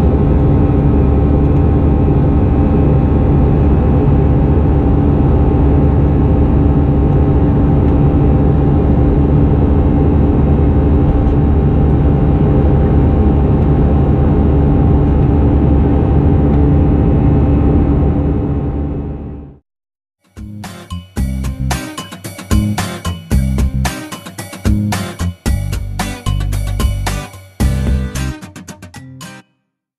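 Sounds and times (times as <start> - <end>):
airplane cabin drone: 0.0 - 19.6
steady tones: 20.4 - 29.4.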